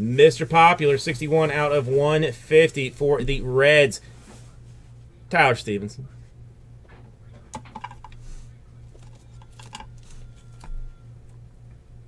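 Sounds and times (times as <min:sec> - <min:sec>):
plastic clicks taps and rustles: 0:07.5 - 0:08.2.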